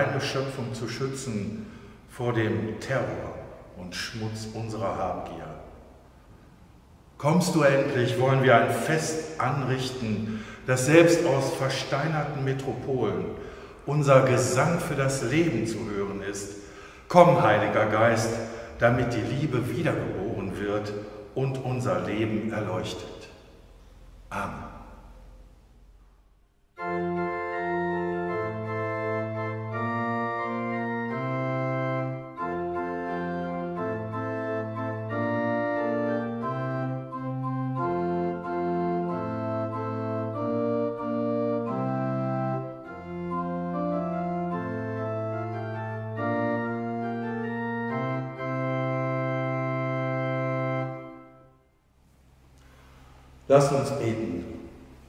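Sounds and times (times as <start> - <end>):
pipe organ playing chords: 0.0 - 26.0, 26.7 - 55.0.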